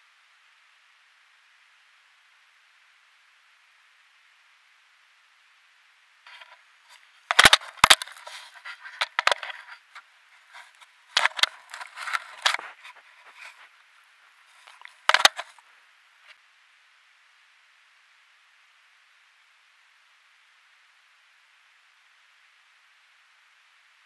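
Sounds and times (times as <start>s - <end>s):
crackling scrapes on camera: 6.3s - 15.6s
camera housing knocked: 7.3s - 8.2s, 14.8s - 15.6s.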